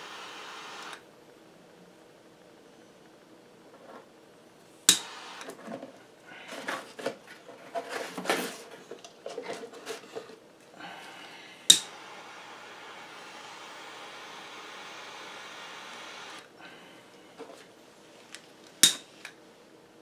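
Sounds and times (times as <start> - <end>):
gas torch igniter clicking: 0.0 - 1.0, 4.9 - 5.6, 11.7 - 16.4
torch flame hissing: 0.0 - 1.0, 4.8 - 5.6, 10.7 - 16.8.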